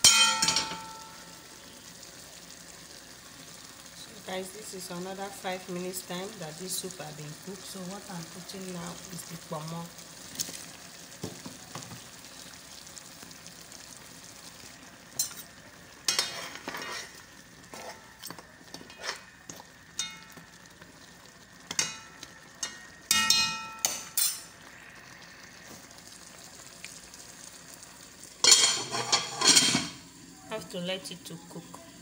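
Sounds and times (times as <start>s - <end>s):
spoon clanking on pot: 0.0s - 1.2s, 15.2s - 15.5s, 17.8s - 20.5s, 21.7s - 24.5s, 28.4s - 30.0s
pot sizzling: 0.0s - 32.0s
metal spoon scraping pot: 16.1s - 18.1s, 28.5s - 29.9s.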